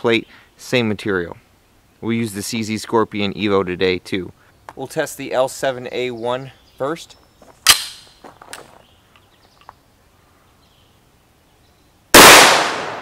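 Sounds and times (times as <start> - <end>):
gun handling clack and clicks: 7.4 - 9.8
gunshot with echo: 12.2 - 13.0.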